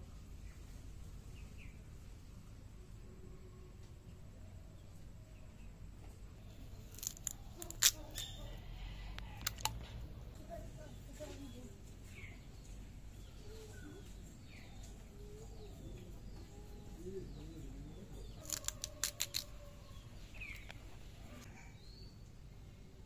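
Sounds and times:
birds chirping: 0:04.7 - 0:22.6
sharp clicks: 0:09.2 - 0:09.9.

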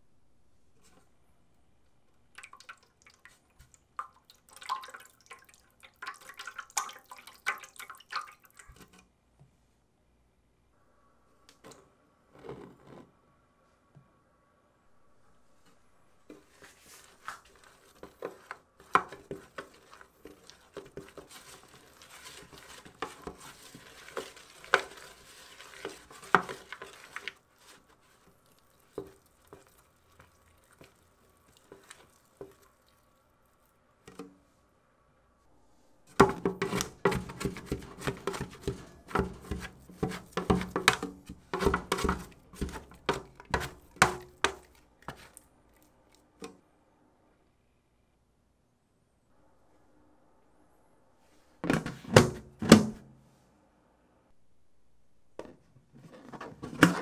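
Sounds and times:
utensil stirring in a bowl: 0:02.4 - 0:09.0, 0:16.3 - 0:33.2, 0:36.1 - 0:45.9.

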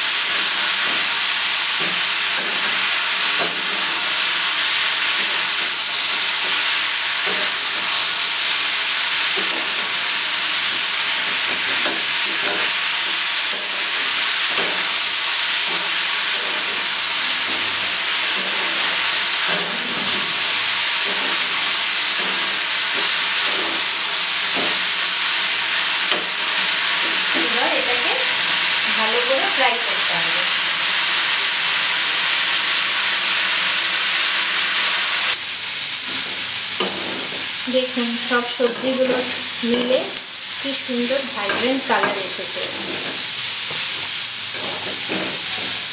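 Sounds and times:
vegetables sizzling in a pan: 0:00.0 - 0:45.9
spatula scraping and knocking pan: 0:00.4 - 0:25.0, 0:36.0 - 0:45.8.

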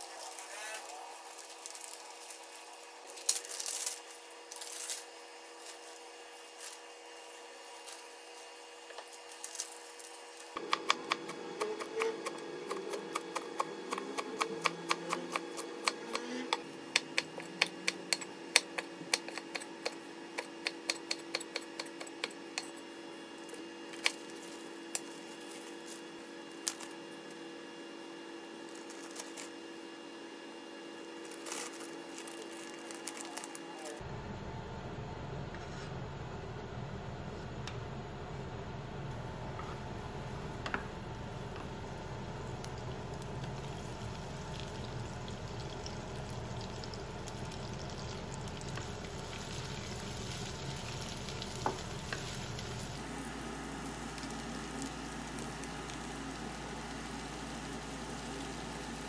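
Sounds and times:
plastic bag rustling: 0:00.0 - 0:06.9, 0:24.2 - 0:27.0, 0:28.6 - 0:29.6, 0:31.2 - 0:34.0.

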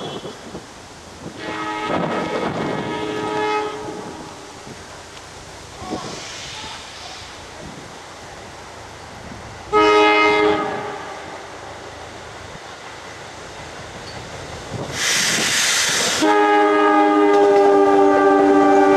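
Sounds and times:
loud air hiss: 0:00.0 - 0:09.7, 0:13.3 - 0:16.9
train air horn blasts: 0:01.4 - 0:04.5, 0:09.7 - 0:11.4, 0:16.0 - 0:18.9.

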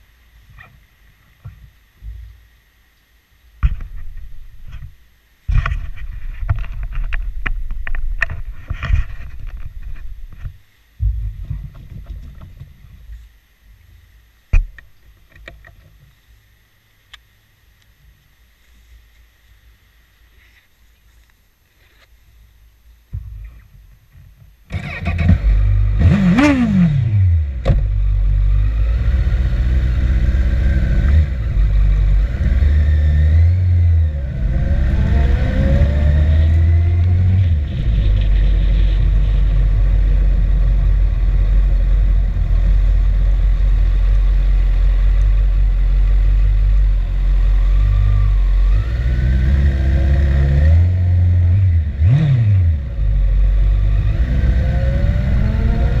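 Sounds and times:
motorcycle accelerating through gears: 0:24.7 - 0:56.0
motorcycle engine revving: 0:24.7 - 0:56.0.

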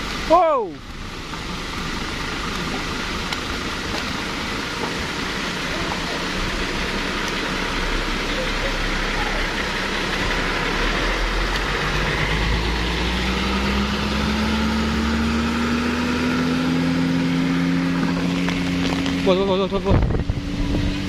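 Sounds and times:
steady hiss: 0:00.0 - 0:13.8
truck diesel engine passing: 0:00.0 - 0:21.0.

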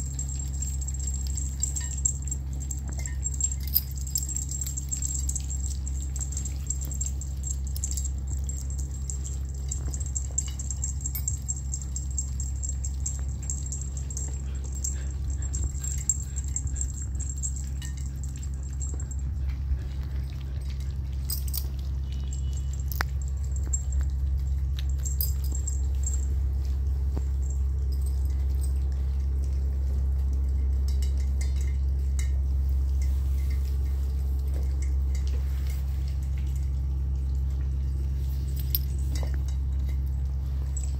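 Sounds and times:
collar bells jingling: 0:00.0 - 0:29.0
steady low hum: 0:00.0 - 0:40.9.

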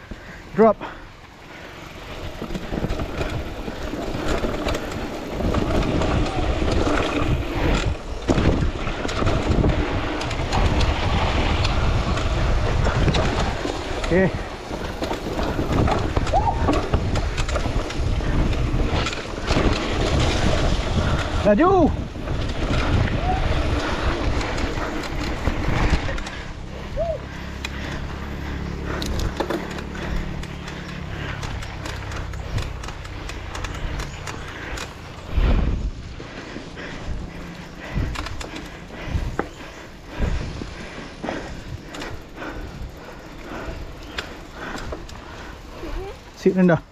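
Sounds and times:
dirt bike engine running: 0:00.0 - 0:46.9
wind buffeting on microphone: 0:01.9 - 0:46.4
bike knocks and clicks: 0:02.2 - 0:26.7, 0:27.5 - 0:35.2, 0:36.6 - 0:39.7.

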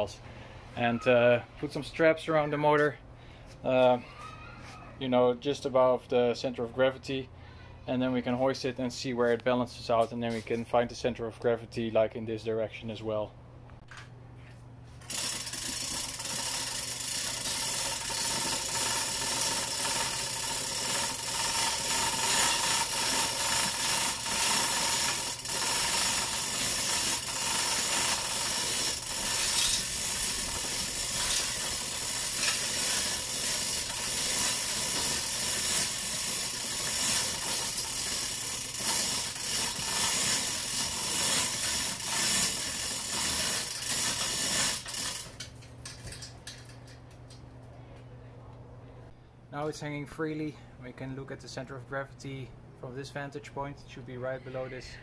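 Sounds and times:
ratcheting clicks: 0:15.0 - 0:47.4
chain rattling through hoist: 0:15.1 - 0:47.0.

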